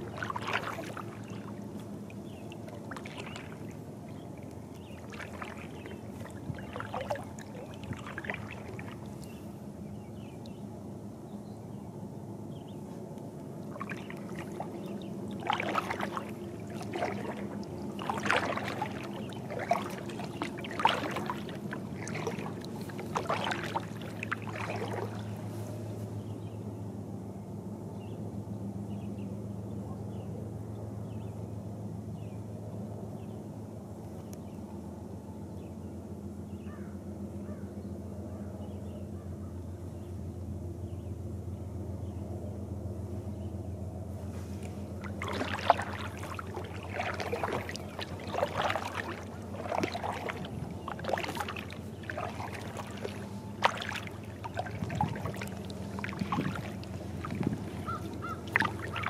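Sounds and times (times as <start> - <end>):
water dripping off paddle: 0.0 - 3.8, 4.4 - 9.3, 13.6 - 25.4, 44.6 - 59.0
kayak paddle splashing in water: 0.0 - 9.4, 13.6 - 25.9, 44.2 - 59.0
steady low hum: 0.0 - 59.0.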